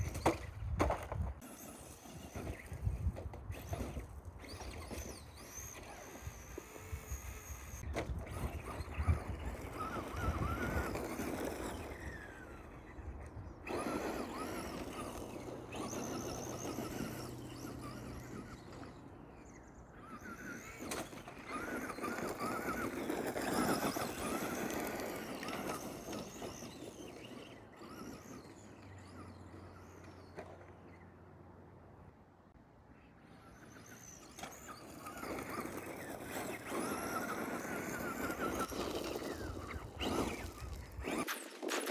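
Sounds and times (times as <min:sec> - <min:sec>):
tyres rustling on dirt: 0:00.0 - 0:31.0, 0:33.4 - 0:41.9
toy truck electric motor whining: 0:00.0 - 0:31.1, 0:33.1 - 0:41.9.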